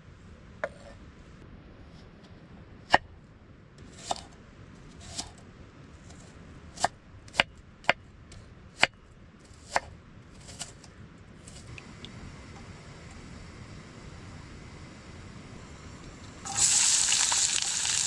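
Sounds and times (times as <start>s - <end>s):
knife chopping on wooden board: 4.0s - 4.3s, 9.6s - 10.8s.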